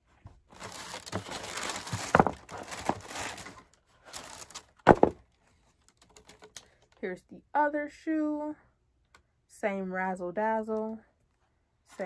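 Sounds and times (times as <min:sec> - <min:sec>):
wrapping paper rustling: 0:00.4 - 0:06.6.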